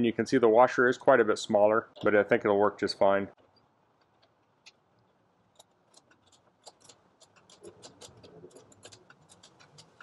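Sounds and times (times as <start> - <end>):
metal ticks and clicks: 5.6 - 10.0.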